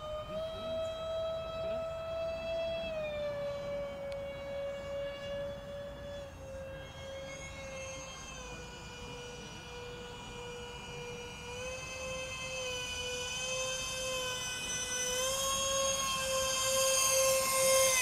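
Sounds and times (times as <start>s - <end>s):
electric ducted fans whining: 0.0s - 18.0s.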